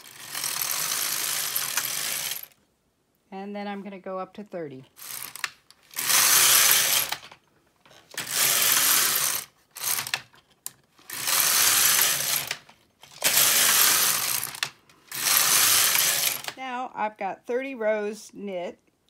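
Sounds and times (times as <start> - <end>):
knitting machine carriage sliding: 0.0 - 2.6, 4.9 - 16.6.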